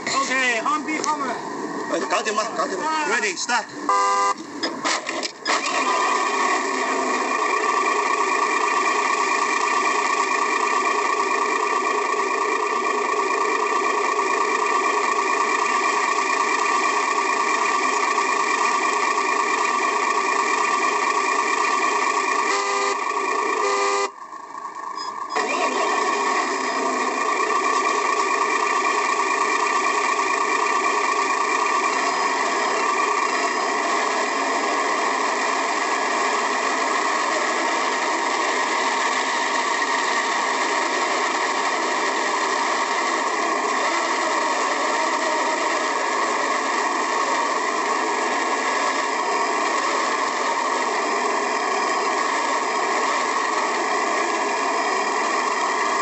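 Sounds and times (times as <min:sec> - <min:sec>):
toy car drive whirring: 0:00.1 - 0:56.0.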